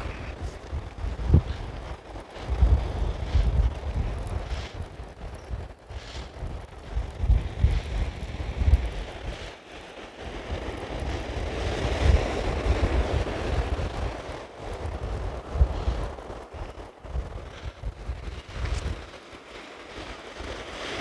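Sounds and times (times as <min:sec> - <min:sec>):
surf on beach: 0:00.0 - 0:21.0
wave breaking and washing up: 0:00.0 - 0:21.0
wind buffeting microphone: 0:00.0 - 0:21.0.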